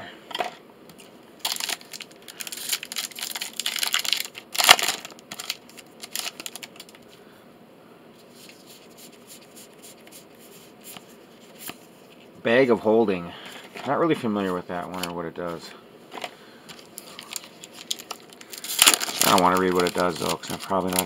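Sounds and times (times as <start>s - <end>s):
foil wrapper tearing and crinkling: 1.4s - 7.0s, 16.7s - 21.0s.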